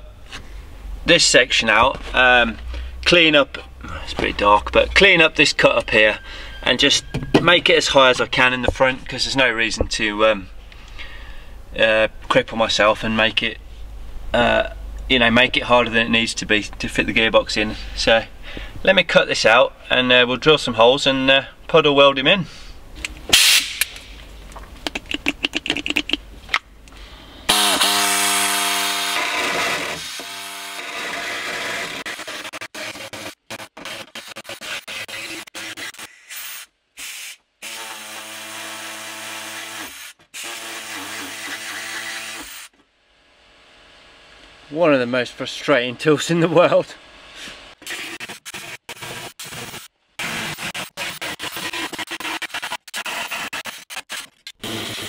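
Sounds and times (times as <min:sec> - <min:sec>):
pneumatic air saw buzzing: 0:23.3 - 0:24.2, 0:27.5 - 0:42.8, 0:47.4 - 0:55.0
air saw cutting steel: 0:54.6 - 0:55.0.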